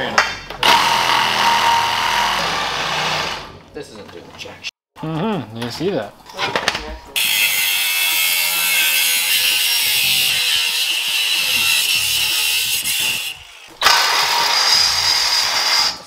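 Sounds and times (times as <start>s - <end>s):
cutoff wheel grinding steel: 7.2s - 16.0s.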